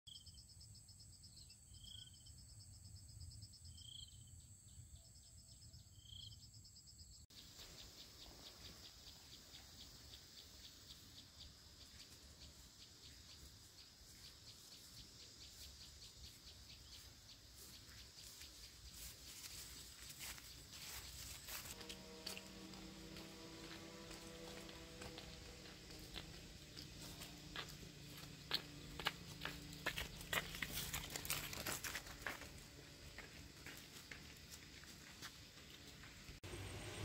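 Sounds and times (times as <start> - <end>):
bird chirp: 0.1 - 21.8
pulsing insect chorus: 5.0 - 37.0.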